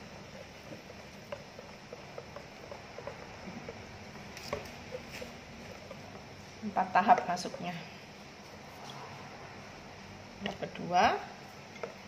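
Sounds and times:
whisk ticking on glass bowl: 0.0s - 7.7s
whisk squishing batter: 0.0s - 9.0s, 10.4s - 12.0s.

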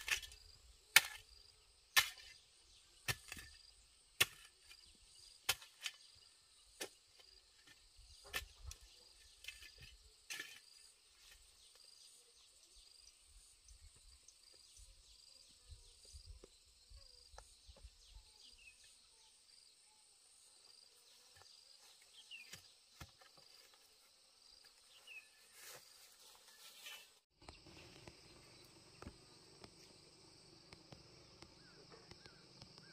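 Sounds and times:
digging tool chopping soil: 0.0s - 2.4s, 3.0s - 6.1s
insects chirping: 0.0s - 32.9s.

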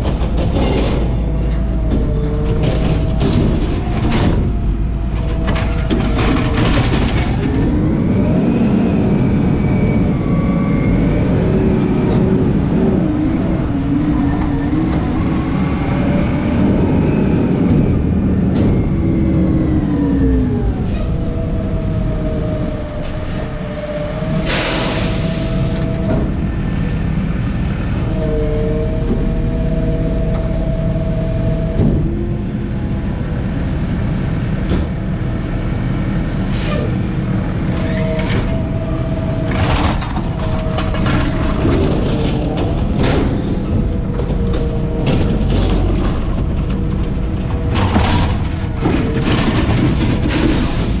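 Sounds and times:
air brake hiss: 24.5s - 25.7s
recycling clattering into hopper: 39.5s - 51.0s.

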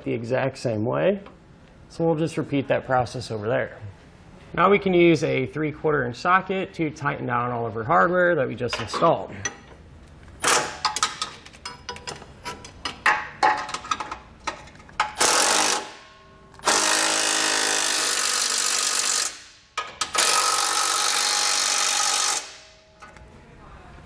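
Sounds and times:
metal clicks and rattles: 10.4s - 15.2s
impact driver running in bursts: 15.2s - 15.9s, 16.6s - 19.4s, 20.2s - 22.6s.

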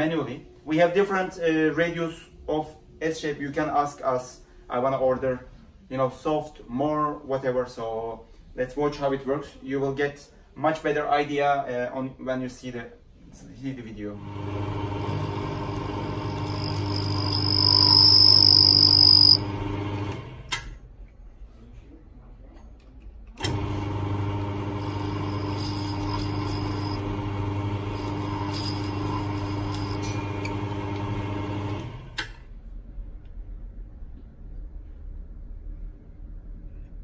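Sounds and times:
high cutting whine: 14.2s - 20.3s, 24.1s - 32.1s
lathe motor humming: 14.2s - 20.5s, 23.5s - 32.2s.

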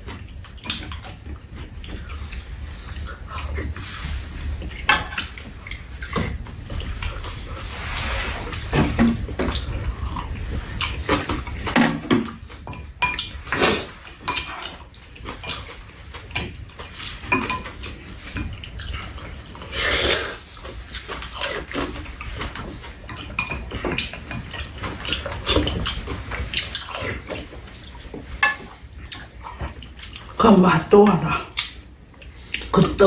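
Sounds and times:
people chewing and slurping: 0.0s - 30.4s, 31.3s - 33.0s
spoons scraping bowls and pan: 10.6s - 27.5s, 28.1s - 28.8s.

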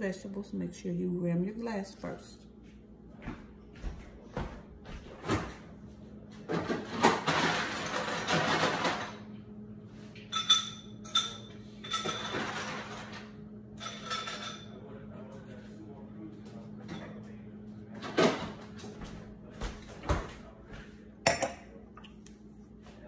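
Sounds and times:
glass clinks: 10.3s - 12.2s.

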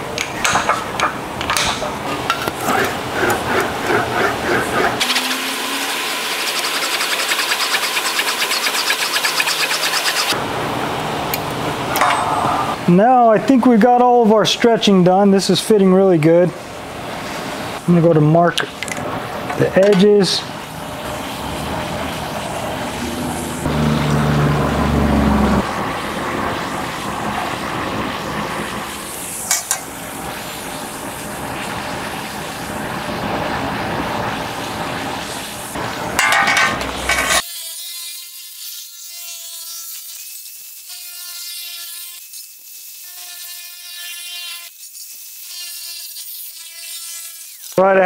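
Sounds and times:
pen scratching on sheet metal: 2.6s - 5.0s, 6.5s - 10.4s.

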